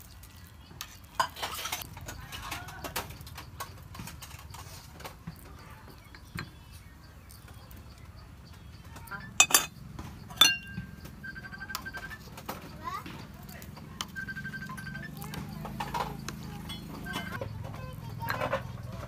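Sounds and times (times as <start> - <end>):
metal tongs scraping a pot: 9.4 - 9.7, 10.4 - 10.9
sharp ringing clinks: 9.4 - 9.8, 10.4 - 11.0.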